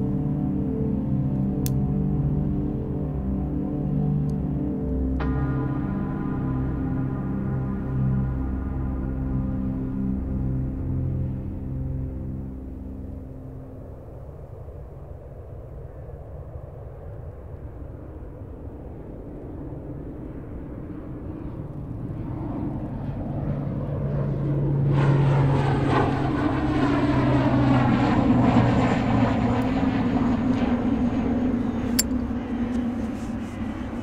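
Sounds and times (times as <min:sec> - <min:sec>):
aircraft rumble flying past: 0:00.0 - 0:34.0.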